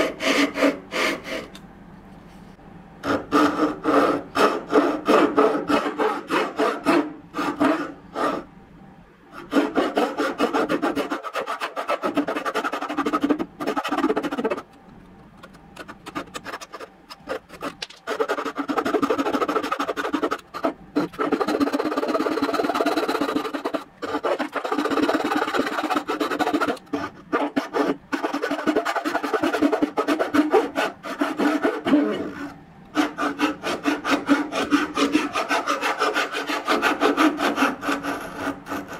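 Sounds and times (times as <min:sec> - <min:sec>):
hand saw cutting wood: 0:00.0 - 0:01.6, 0:03.0 - 0:08.4, 0:09.5 - 0:14.6, 0:15.8 - 0:38.9.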